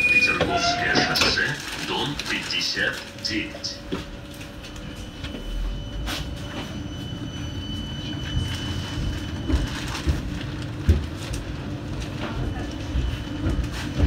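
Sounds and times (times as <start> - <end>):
tram rumbling along track: 0.0 - 14.0
high whine: 2.2 - 10.1.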